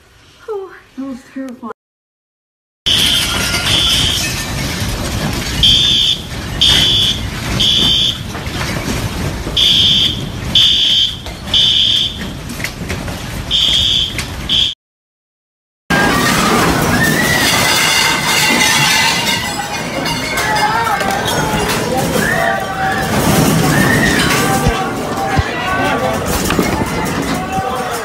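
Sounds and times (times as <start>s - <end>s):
fire alarm beeping: 2.9s - 4.3s, 5.6s - 8.4s, 9.6s - 12.4s, 13.5s - 14.8s.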